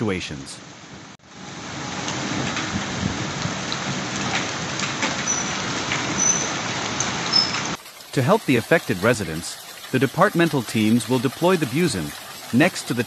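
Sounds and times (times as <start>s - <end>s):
heavy rain and hail on pavement: 1.4s - 8.1s.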